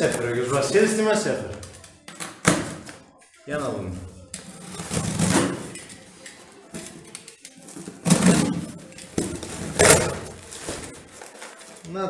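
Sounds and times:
knife cutting tape and cardboard: 9.4s - 10.9s.

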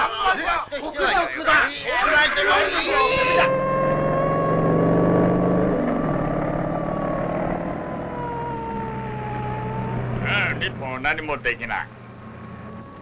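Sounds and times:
cartoon engine drone: 2.6s - 13.0s
high whine falling in pitch: 2.8s - 13.0s.

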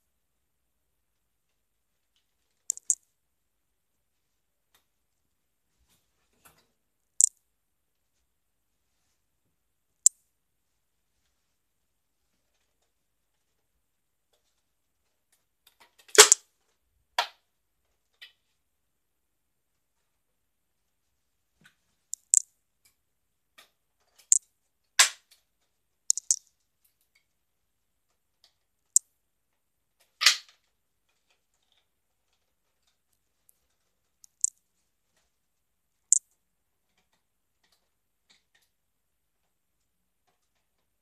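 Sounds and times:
plastic toy blaster clicks: 16.2s - 16.4s.

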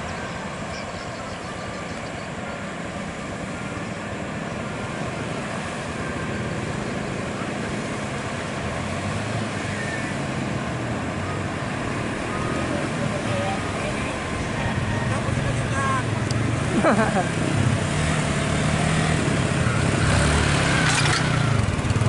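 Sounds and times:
motorcycle passing: 0.0s - 22.0s
truck diesel engine running: 10.8s - 22.0s.

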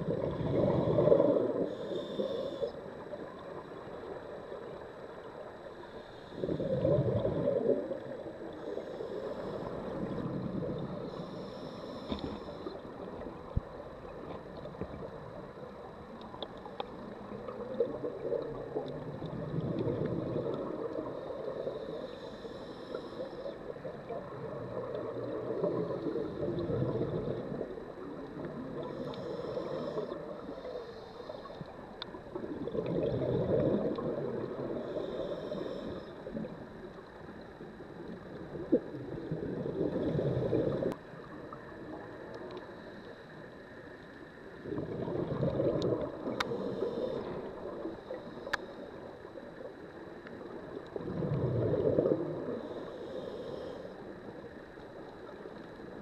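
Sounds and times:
underwater exhaled bubbles gurgling: 0.0s - 56.0s
regulator hissing inhalations: 1.7s - 2.8s, 11.1s - 12.8s, 21.8s - 23.6s, 34.8s - 36.2s, 52.6s - 54.1s.

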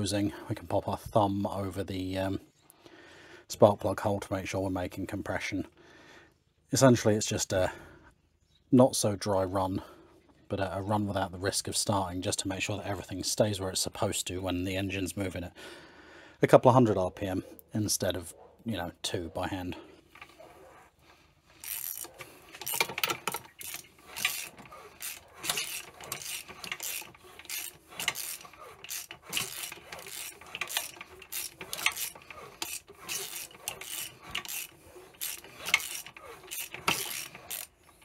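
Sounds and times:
ratchet spanner clicking: 21.6s - 38.0s.

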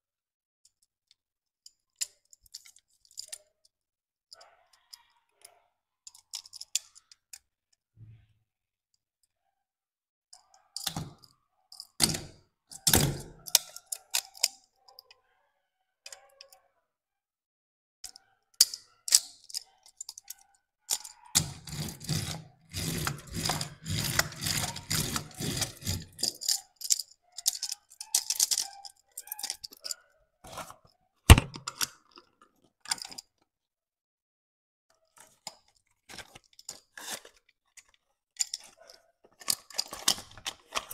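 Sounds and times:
plastic toy clicks and rattles: 6.1s - 7.4s, 10.8s - 15.0s, 18.1s - 32.2s, 35.0s - 40.9s
toy parts clattering: 6.1s - 7.4s, 10.8s - 15.1s, 18.6s - 33.4s, 35.0s - 40.9s.

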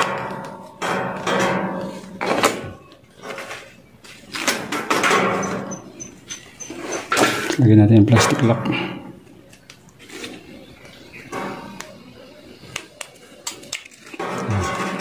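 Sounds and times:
strummed acoustic guitar: 14.2s - 15.0s.

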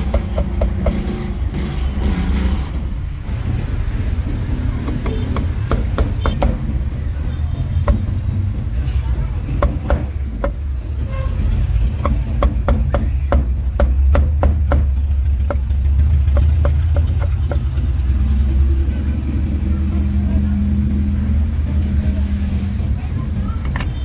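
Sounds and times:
road traffic rumble: 0.0s - 24.0s
cleaver chopping on wooden block: 12.0s - 15.7s.

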